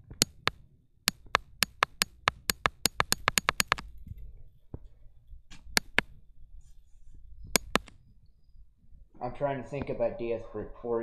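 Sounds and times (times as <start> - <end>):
sharp taps: 0.0 - 3.8, 5.5 - 6.1, 7.6 - 8.0.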